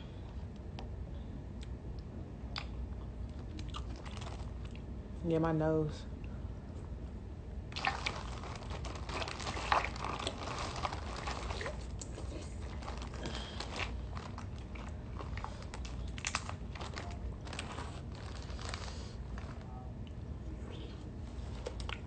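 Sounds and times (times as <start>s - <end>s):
chewing crunchy seafood: 2.5s - 4.9s, 7.8s - 19.6s.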